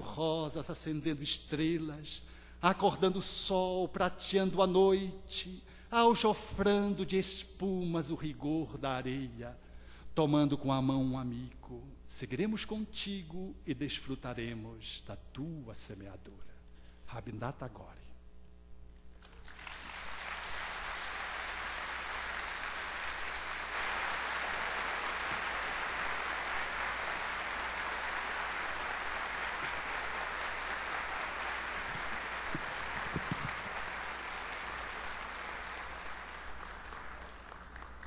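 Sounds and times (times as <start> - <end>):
audience applauding: 19.2 - 38.0.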